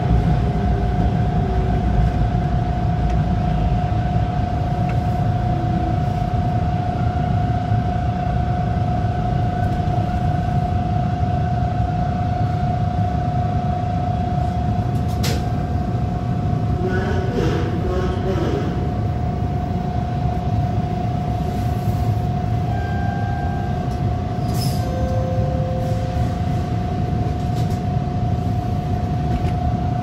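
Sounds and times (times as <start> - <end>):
train wheels rumbling: 0.0 - 10.9
train whine: 0.0 - 30.0.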